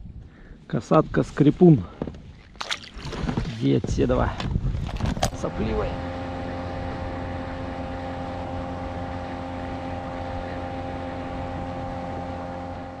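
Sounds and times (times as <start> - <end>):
outboard motor running: 2.0 - 13.0.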